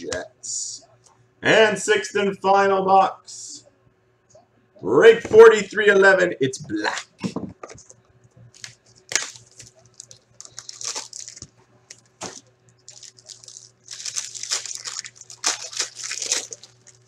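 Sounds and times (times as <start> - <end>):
plastic and foil crinkling: 8.5 - 17.0.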